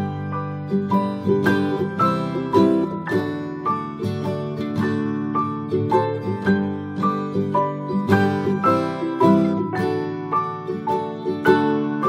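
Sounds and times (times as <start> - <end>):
plucked string instrument melody: 0.0 - 12.0.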